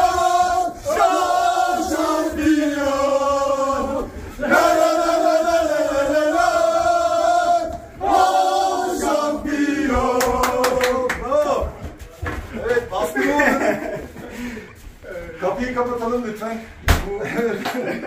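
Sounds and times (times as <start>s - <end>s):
men chanting together: 0.0s - 11.8s.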